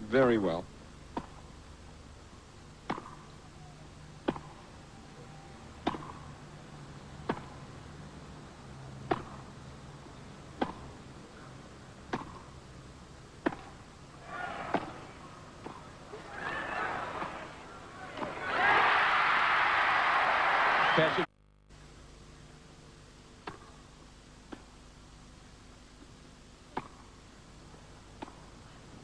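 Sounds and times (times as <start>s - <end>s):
tennis ball hit by racquets: 1.1s - 1.5s, 2.8s - 3.3s, 4.2s - 4.6s, 5.8s - 6.4s, 7.2s - 7.7s, 9.0s - 9.5s, 10.5s - 11.0s, 12.0s - 12.6s, 13.4s - 19.0s, 23.4s - 23.8s, 26.7s - 27.2s, 28.2s - 28.5s
crowd noise: 14.2s - 21.3s.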